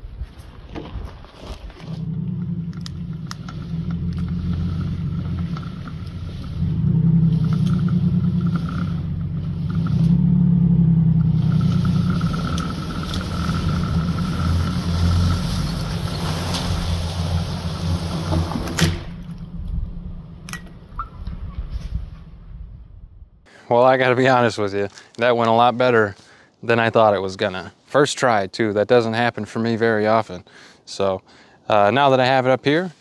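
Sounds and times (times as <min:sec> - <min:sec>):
pickup truck engine under load: 0:01.8 - 0:21.2.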